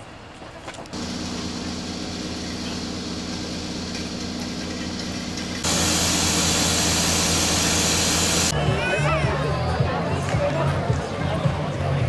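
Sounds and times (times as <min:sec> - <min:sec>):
engine idling: 0:01.0 - 0:08.5
loud hissy sound: 0:05.6 - 0:08.5.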